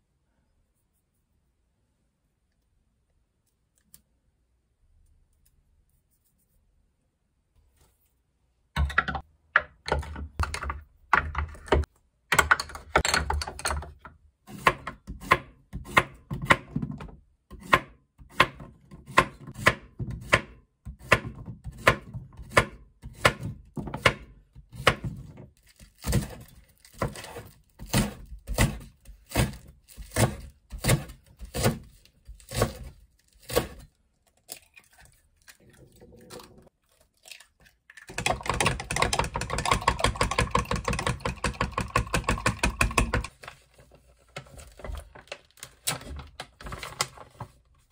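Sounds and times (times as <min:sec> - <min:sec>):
knife chopping on wooden board: 0:17.6 - 0:25.2, 0:27.0 - 0:32.9.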